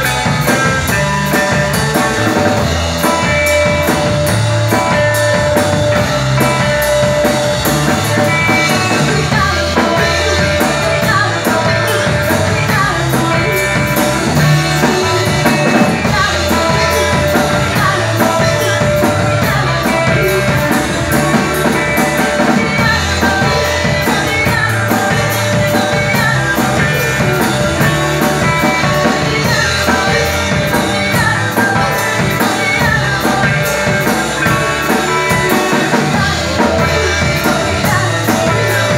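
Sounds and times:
drum kit: 0:00.0 - 0:38.9
electric guitar: 0:00.0 - 0:38.9
woman singing into microphone: 0:08.6 - 0:38.9.

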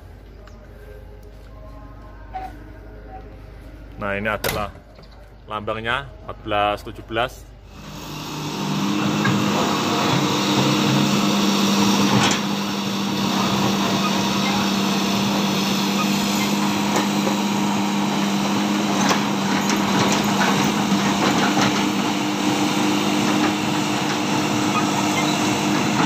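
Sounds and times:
diesel engine running: 0:07.6 - 0:26.0.

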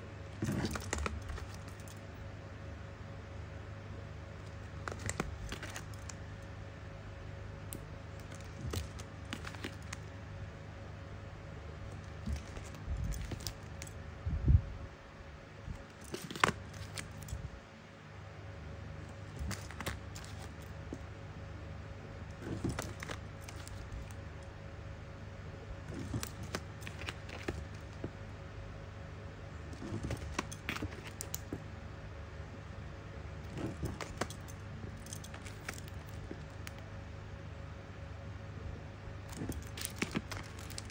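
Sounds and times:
low steady hum: 0:00.0 - 0:40.9
plastic packaging clicks and crinkles: 0:04.8 - 0:06.2, 0:07.7 - 0:10.0, 0:11.9 - 0:13.9, 0:15.8 - 0:17.4, 0:19.1 - 0:20.8, 0:22.3 - 0:24.2, 0:25.9 - 0:28.1, 0:29.7 - 0:31.6, 0:33.5 - 0:36.8, 0:39.3 - 0:40.9.

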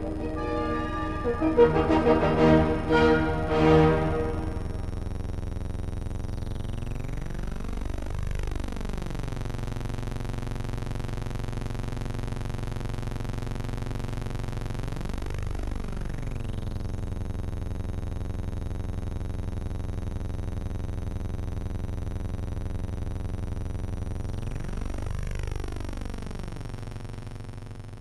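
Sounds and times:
low electronic buzzing drone: 0:00.0 - 0:06.0.

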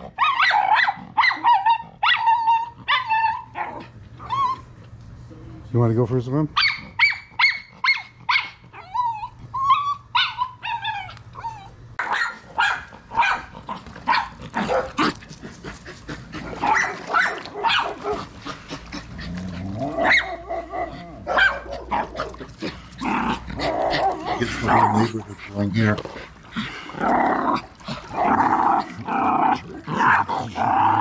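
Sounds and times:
dog barking and yipping: 0:00.2 - 0:04.4, 0:06.6 - 0:09.0, 0:09.6 - 0:15.1, 0:16.6 - 0:18.2, 0:20.0 - 0:22.5
dog whining: 0:00.2 - 0:04.8, 0:06.6 - 0:11.8.

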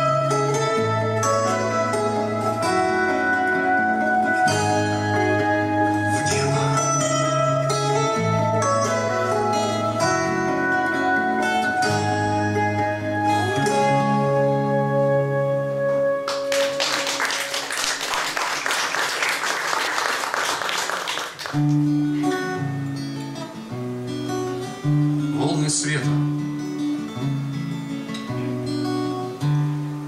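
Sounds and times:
fingerpicked acoustic guitar: 0:00.0 - 0:17.6, 0:21.3 - 0:30.0
acoustic guitar notes: 0:00.0 - 0:17.7, 0:20.6 - 0:30.0
audience applause: 0:16.3 - 0:21.8.

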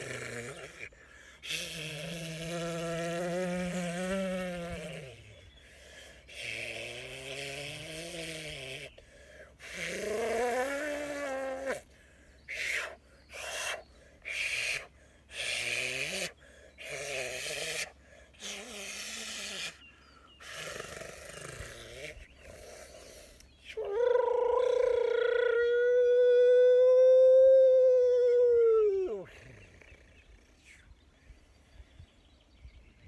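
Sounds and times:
man vocalising wavering tones: 0:23.6 - 0:29.6.

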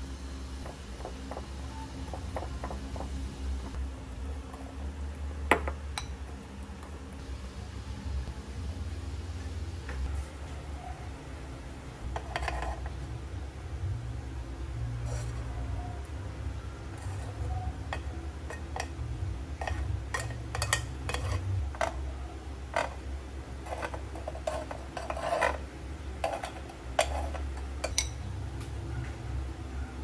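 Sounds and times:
steady low hum: 0:00.0 - 0:30.0
knife scraping waffle plates: 0:12.1 - 0:13.0, 0:19.6 - 0:22.0, 0:23.6 - 0:25.6, 0:26.2 - 0:28.0.

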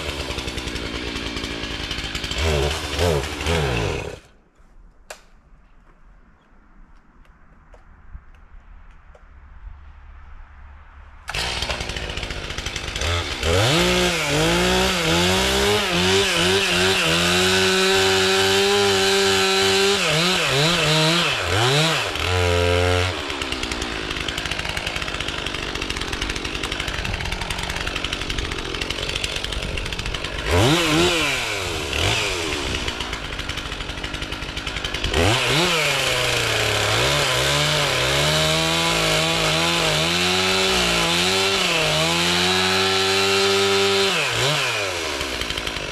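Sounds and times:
chainsaw revving: 0:00.0 - 0:04.3, 0:11.3 - 0:45.9
chainsaw cutting log: 0:00.0 - 0:04.4, 0:11.3 - 0:45.9.

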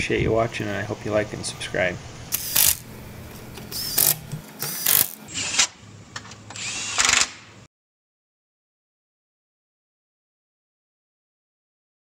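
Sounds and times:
steady low hum: 0:00.0 - 0:06.2
mechanical tool bursts: 0:02.3 - 0:02.9, 0:03.7 - 0:05.8, 0:06.6 - 0:07.5.

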